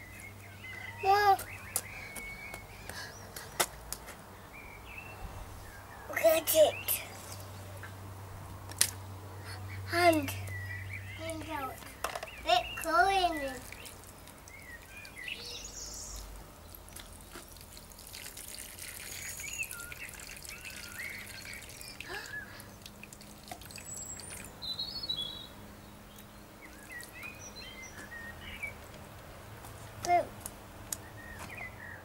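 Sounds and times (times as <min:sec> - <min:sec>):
birds chirping: 0:00.0 - 0:08.1, 0:09.0 - 0:17.8, 0:18.5 - 0:30.3, 0:30.9 - 0:32.0
water trickling onto soil: 0:12.8 - 0:24.7, 0:26.1 - 0:30.1.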